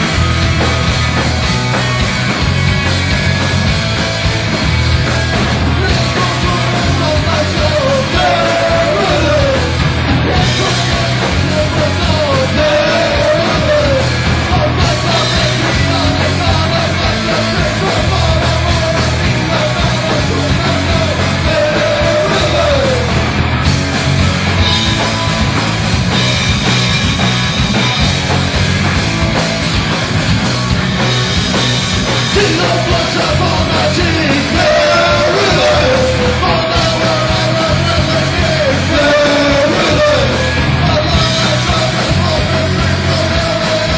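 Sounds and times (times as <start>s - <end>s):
live rock band playing: 0.0s - 43.9s
singer yelling into microphone: 5.8s - 18.9s.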